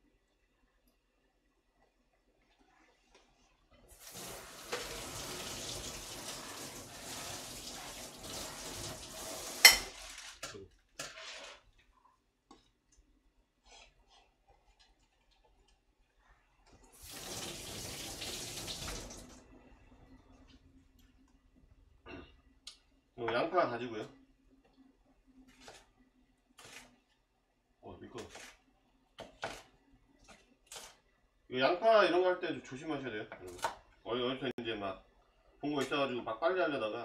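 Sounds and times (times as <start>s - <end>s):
faucet running water: 3.8s - 10.2s, 16.8s - 19.6s.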